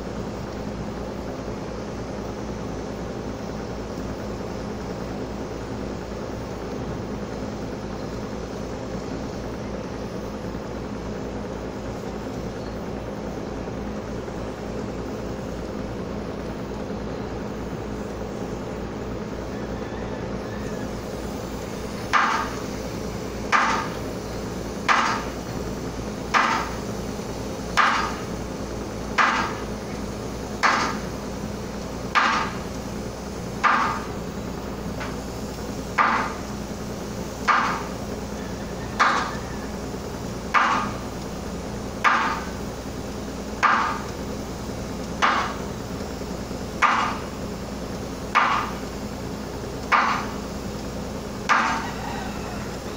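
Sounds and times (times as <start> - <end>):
ship engine hum: 0.0 - 52.9
hammer strikes: 24.9 - 25.2, 40.5 - 40.9, 42.0 - 42.5, 43.6 - 44.0, 45.2 - 45.6, 46.8 - 47.2, 48.3 - 48.7, 49.9 - 50.3, 51.5 - 51.8.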